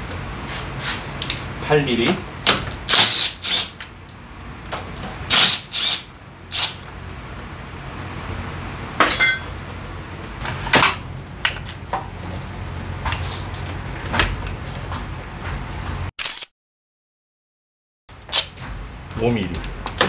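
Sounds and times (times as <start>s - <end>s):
metal tools clinking: 9.1s - 10.2s.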